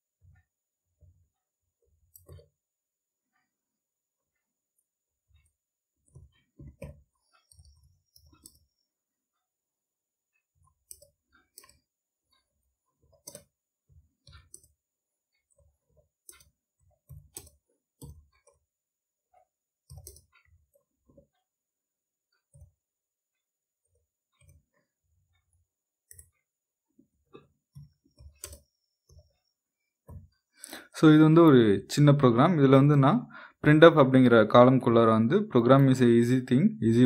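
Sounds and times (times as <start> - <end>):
faint keyboard typing: 0.2 - 2.6, 4.3 - 8.9, 10.4 - 18.7, 19.3 - 21.5, 22.3 - 33.2.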